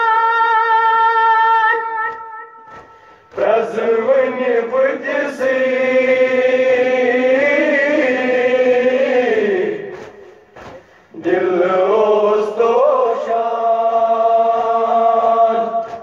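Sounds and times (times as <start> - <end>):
group of voices chanting: 2.1 - 16.0.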